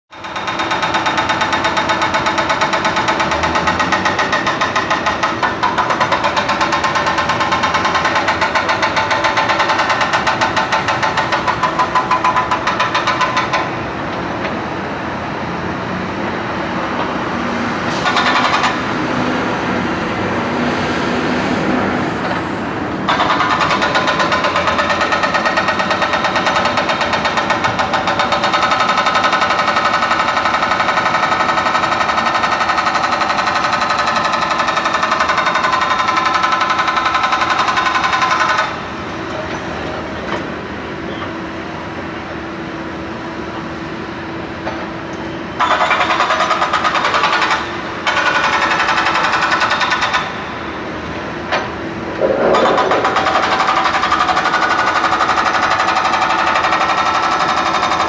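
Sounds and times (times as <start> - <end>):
hydraulic breaker pounding pavement: 0.1 - 14.9, 16.9 - 20.1, 21.2 - 40.6, 45.6 - 58.0.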